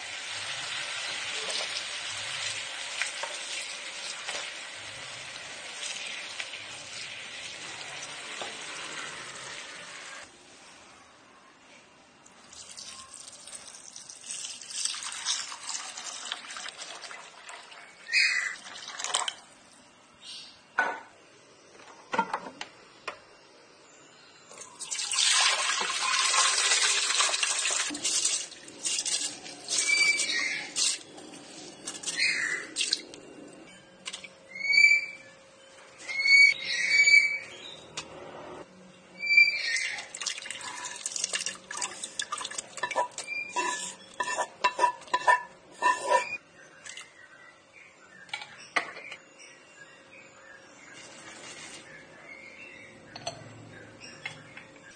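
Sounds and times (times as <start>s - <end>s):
water pouring onto rice: 12.5s - 17.8s
bird chirping: 31.5s - 38.0s, 45.9s - 54.9s
ingredients clinking into metal pot: 40.2s - 47.0s.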